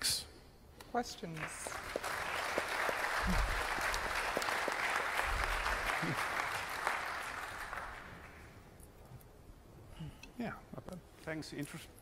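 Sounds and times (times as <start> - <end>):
audience applauding: 1.4 - 8.5.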